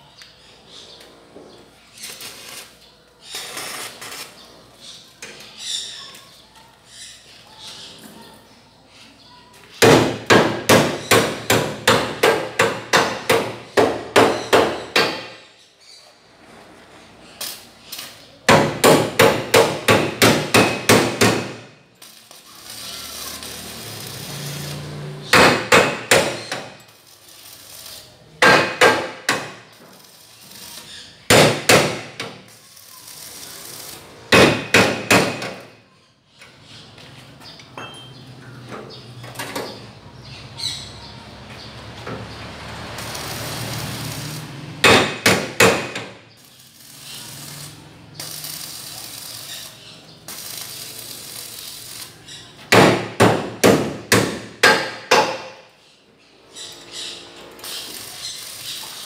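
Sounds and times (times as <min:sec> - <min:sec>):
arc welder crackling hiss: 0:02.0 - 0:04.4, 0:18.8 - 0:35.3, 0:42.6 - 0:52.4, 0:57.5 - 0:59.0
hammer striking steel frame: 0:09.8 - 0:15.4, 0:18.5 - 0:21.7, 0:25.3 - 0:26.8, 0:28.4 - 0:29.7, 0:31.3 - 0:32.5, 0:34.3 - 0:35.7, 0:44.8 - 0:46.2, 0:52.7 - 0:55.6.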